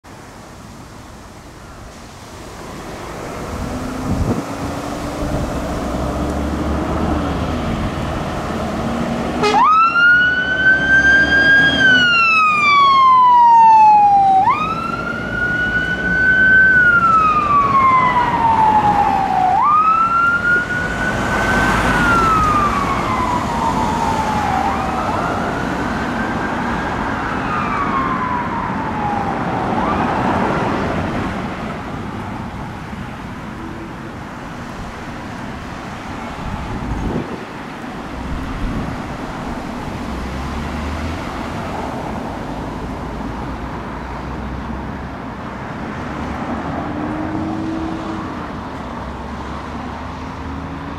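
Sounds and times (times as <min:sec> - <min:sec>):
heavy truck engine pulling away: 0:02.0 - 0:12.1
fire engine siren wailing: 0:03.5 - 0:41.2.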